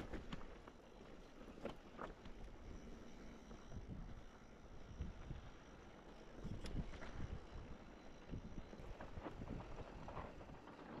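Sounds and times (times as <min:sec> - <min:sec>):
wind buffeting microphone: 0:06.4 - 0:10.6.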